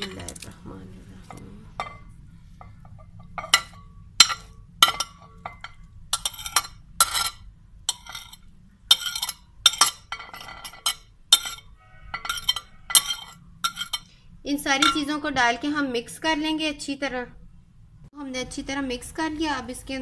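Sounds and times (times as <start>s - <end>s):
metal spoon clinking on dishes: 1.8s - 15.2s.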